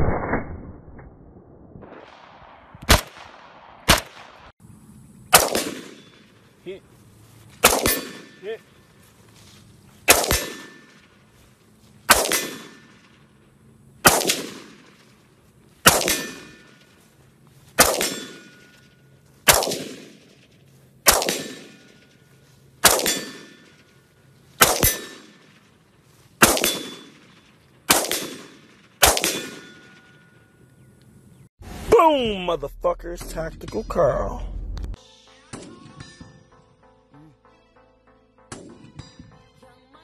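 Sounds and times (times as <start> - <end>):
rifle shots: 1.8 - 4.5, 5.3 - 6.5, 7.6 - 8.6, 10.0 - 11.2, 12.0 - 13.3, 14.0 - 17.0, 17.8 - 22.2, 22.8 - 24.0, 24.6 - 25.8, 26.4 - 30.3.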